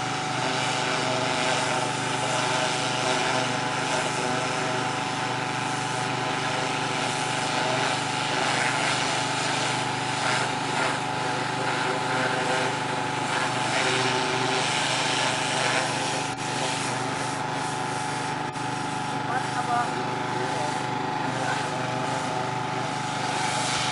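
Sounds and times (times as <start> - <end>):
water spray hissing: 11.7 - 23.9.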